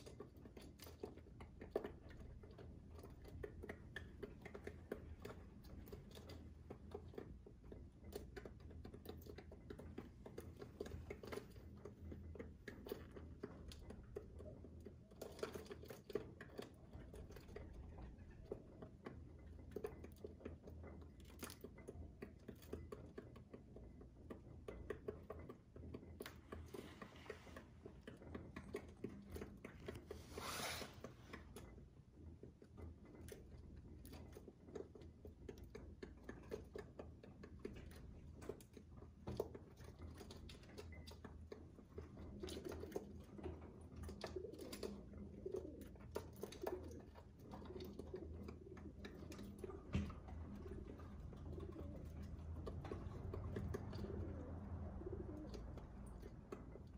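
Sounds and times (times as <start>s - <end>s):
pigeons pecking seed: 0.0s - 56.9s
pigeons cooing: 44.1s - 56.7s.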